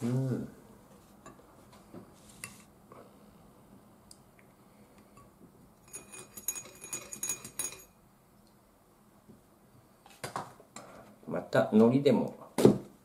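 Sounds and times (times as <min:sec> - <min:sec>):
spoon clinking against ceramic: 0:05.8 - 0:07.9.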